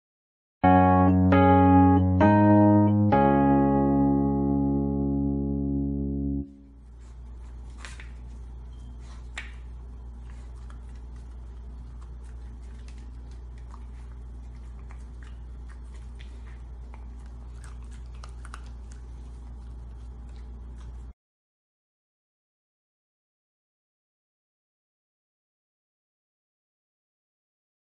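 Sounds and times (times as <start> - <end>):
steady low hum: 2.1 - 21.2.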